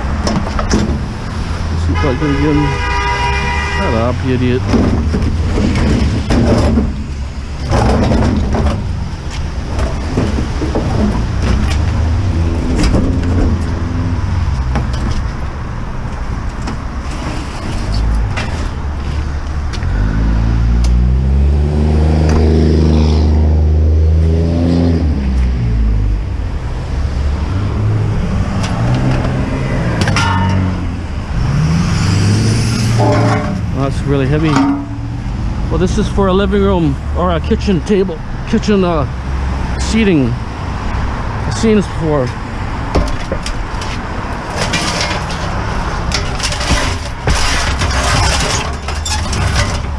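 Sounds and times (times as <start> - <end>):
road traffic rumble: 0.0 - 49.9
knocks and scrapes of appliance: 4.6 - 9.0, 33.0 - 33.7, 42.9 - 49.9
vehicle engine passing: 19.2 - 37.8.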